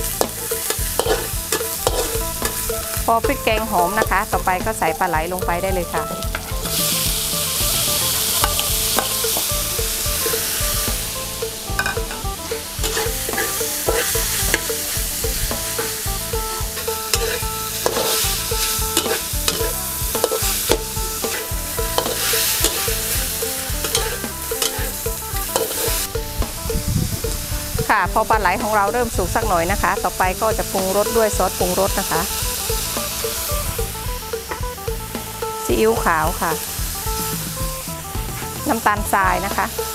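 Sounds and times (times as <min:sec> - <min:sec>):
food sizzling in hot oil: 0:00.0 - 0:39.9
metal spatula scraping wok: 0:00.0 - 0:39.9.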